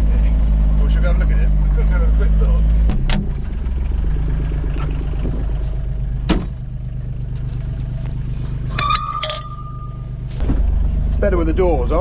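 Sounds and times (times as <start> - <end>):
diesel engine idling: 0.0 - 12.0
metal gate clanking: 8.6 - 10.2.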